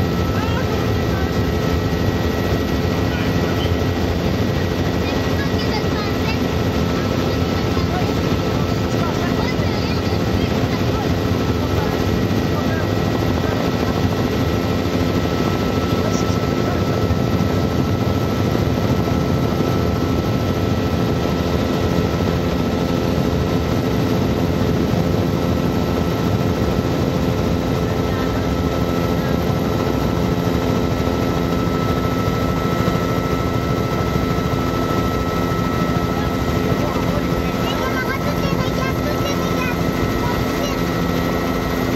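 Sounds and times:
helicopter engine and rotor drone: 0.0s - 41.9s.

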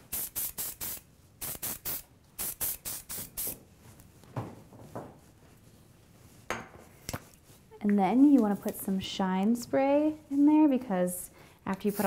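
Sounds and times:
aerosol spray hisses: 0.0s - 3.6s.

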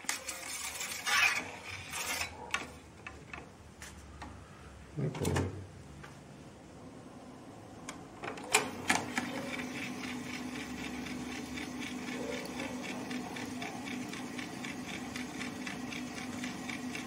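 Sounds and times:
tape recorder controls clicking: 7.8s - 10.4s
tape recorder running: 8.3s - 17.0s.

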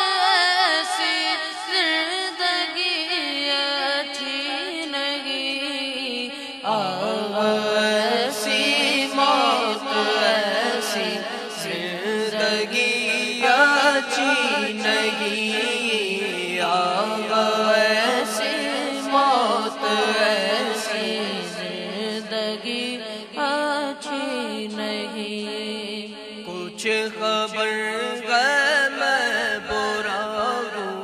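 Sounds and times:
young male voices singing: 6.6s - 23.5s.

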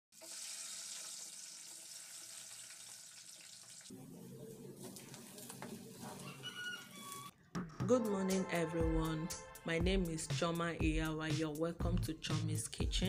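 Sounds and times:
food hissing in a pot: 0.2s - 3.9s.

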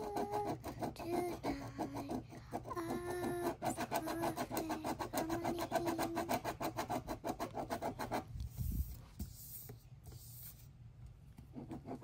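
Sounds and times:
pen scribbling on paper: 0.0s - 8.3s, 11.5s - 12.0s.

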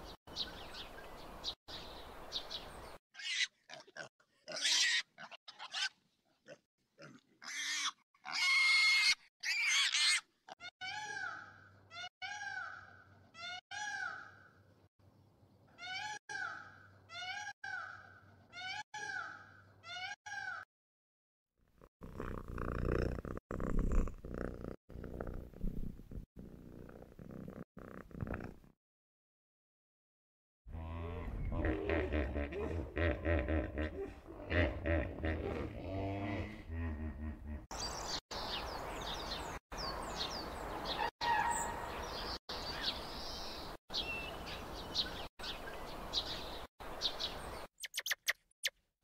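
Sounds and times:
piglets squealing: 3.2s - 6.0s, 7.0s - 14.3s
low rough growl: 21.7s - 28.7s, 30.7s - 37.7s
peafowl calling: 40.9s - 42.0s.

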